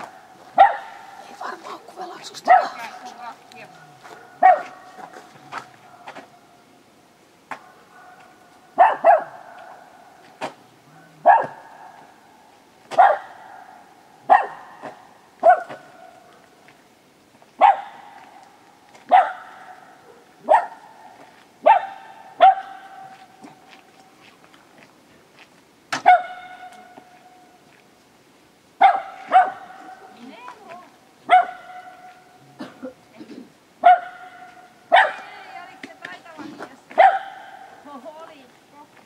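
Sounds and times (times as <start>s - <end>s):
dog barking: 0.0s - 1.3s, 2.4s - 3.0s, 4.0s - 5.0s, 5.8s - 6.4s, 7.5s - 10.1s, 11.2s - 12.1s, 12.9s - 16.5s, 17.6s - 18.2s, 19.1s - 23.6s, 26.0s - 27.0s, 28.8s - 30.2s, 31.2s - 32.3s, 33.8s - 35.4s, 36.9s - 37.8s.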